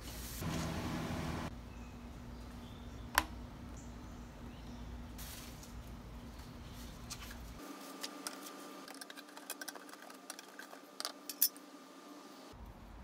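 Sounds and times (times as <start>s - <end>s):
paper rustling and crinkling: 5.2s - 11.0s.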